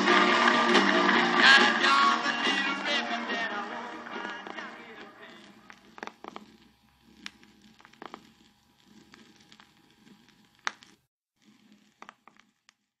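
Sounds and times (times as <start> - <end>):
sharp clicks and pops: 4.2 - 11.0.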